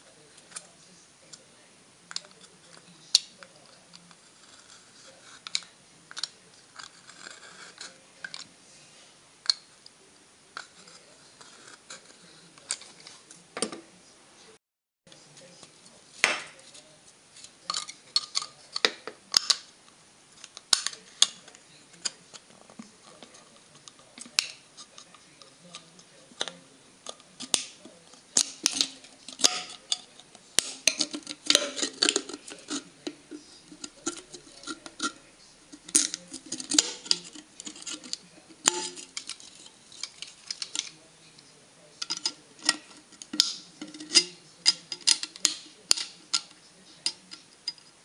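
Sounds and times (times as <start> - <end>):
knife scraping metal can: 26.4 - 41.0, 42.0 - 47.4.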